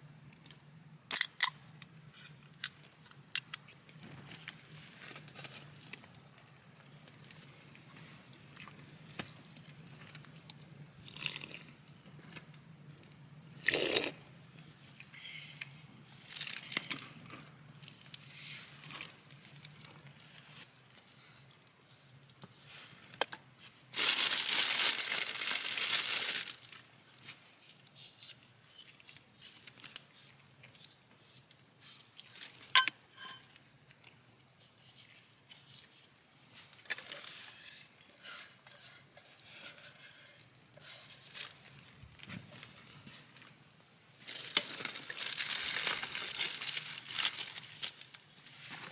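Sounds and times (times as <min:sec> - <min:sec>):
plastic bag crinkling: 0:23.9 - 0:26.9, 0:44.2 - 0:48.9
camp cookware clinks: 0:32.8 - 0:33.4.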